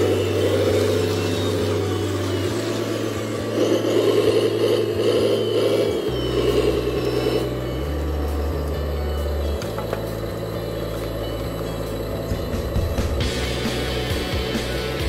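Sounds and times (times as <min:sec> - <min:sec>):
low engine-like hum: 0:00.0 - 0:15.0
mechanical whir: 0:00.0 - 0:15.0.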